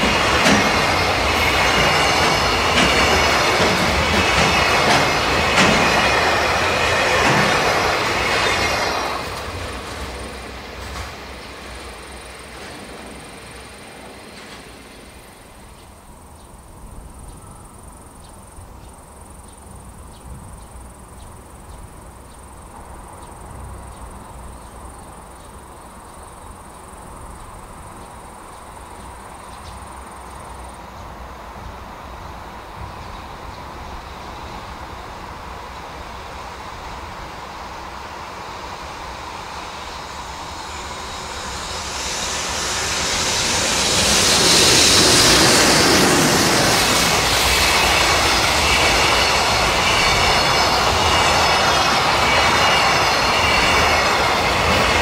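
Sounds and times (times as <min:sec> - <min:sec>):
freight train rumble: 0:00.0 - 0:55.0.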